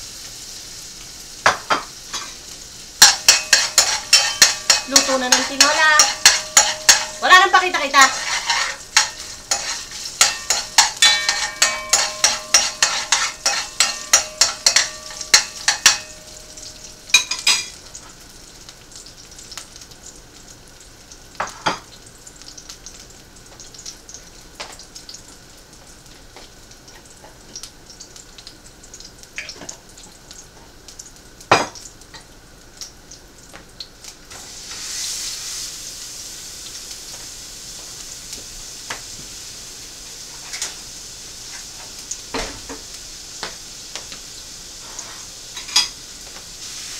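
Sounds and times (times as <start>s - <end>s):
food sizzling in pan: 0.0s - 46.9s
metal utensil scraping frying pan: 3.0s - 17.8s.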